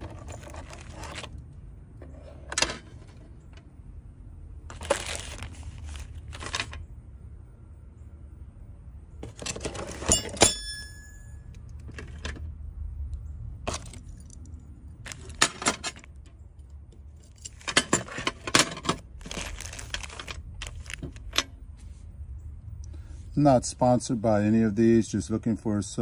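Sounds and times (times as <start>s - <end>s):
ringing metal clink: 10.1s - 11.6s.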